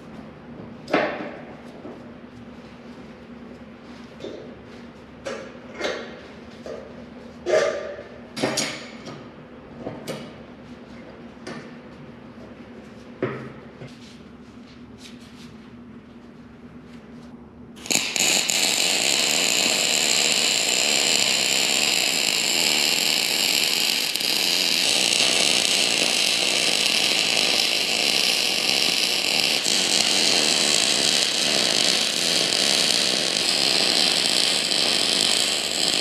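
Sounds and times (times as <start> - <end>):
electric sander grinding steel: 17.8 - 36.0.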